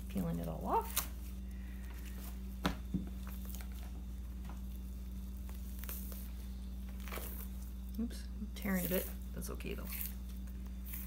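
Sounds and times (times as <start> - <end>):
low room hum: 0.0 - 11.0
soft handling sounds: 0.4 - 8.0.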